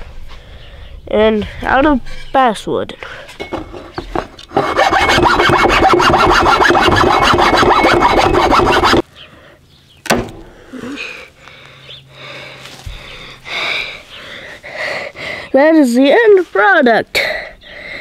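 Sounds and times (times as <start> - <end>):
hand saw cutting wood: 4.4 - 9.0
sharp knock: 10.1 - 10.5.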